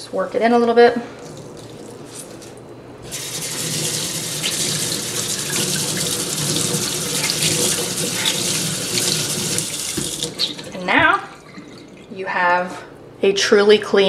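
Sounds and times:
water splashing over hands: 0:01.2 - 0:12.1
tap water pouring into sink: 0:01.2 - 0:12.2.

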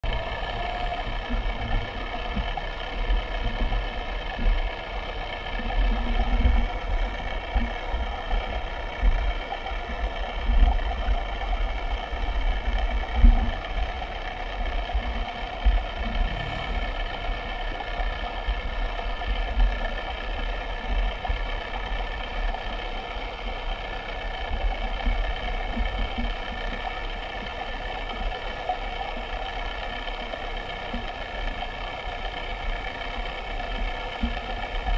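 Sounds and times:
small motor whining: 0:00.1 - 0:34.9
low rumbles and bumps: 0:15.0 - 0:18.8.

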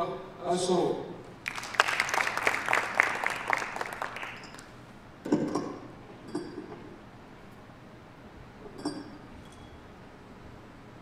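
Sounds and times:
audience applause: 0:01.4 - 0:04.7.

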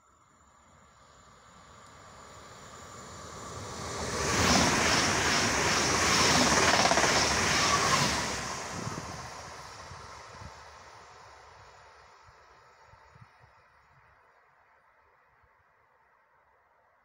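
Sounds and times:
train passing at speed: 0:00.5 - 0:13.4.

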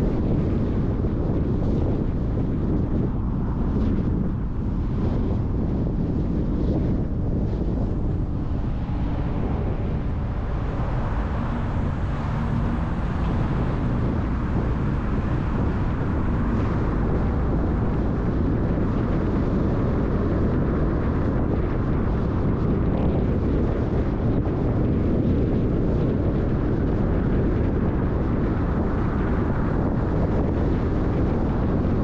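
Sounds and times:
wind noise: 0:00.0 - 0:32.0
tyres rumbling on pavement: 0:07.1 - 0:22.5.

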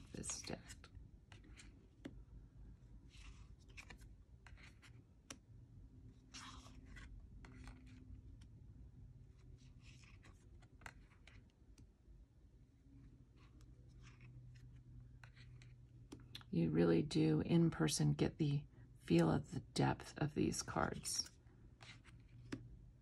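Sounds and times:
cards sliding and clicking: 0:00.0 - 0:02.2, 0:03.1 - 0:05.5, 0:06.2 - 0:08.6, 0:09.4 - 0:11.9, 0:13.3 - 0:16.4, 0:21.8 - 0:22.7
low room hum: 0:00.0 - 0:23.0.

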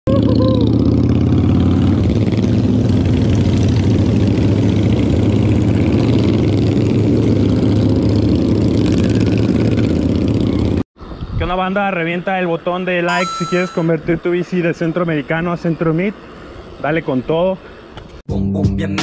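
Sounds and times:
motorcycle engines running: 0:00.1 - 0:11.2.

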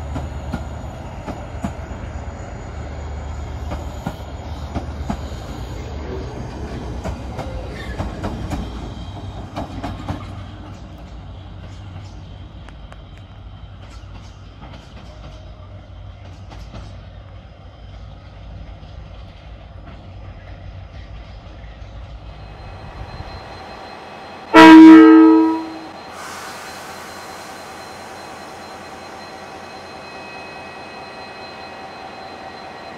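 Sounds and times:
diesel locomotive engine rumbling: 0:00.0 - 0:32.9
locomotive horn blast: 0:24.5 - 0:25.9.

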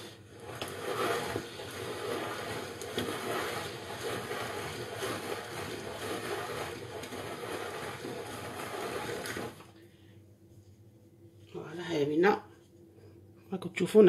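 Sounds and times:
pasta roller machine running: 0:00.0 - 0:09.8.

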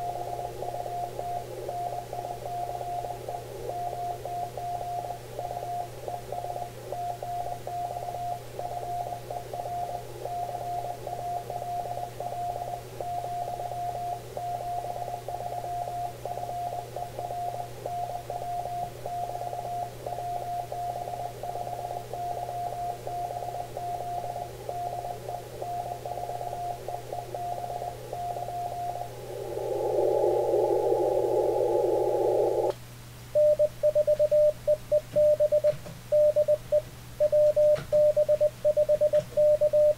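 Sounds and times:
lower morse sidetone: 0:00.0 - 0:32.8, 0:33.4 - 0:34.5
radio band hiss: 0:28.9 - 0:32.7
morse code tone: 0:33.4 - 0:39.9.

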